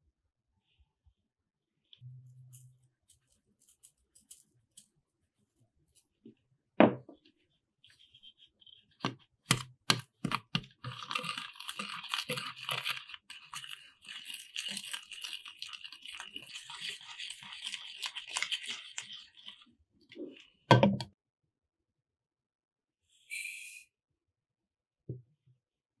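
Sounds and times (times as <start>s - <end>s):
milk frother buzzing: 10.8s - 19.6s.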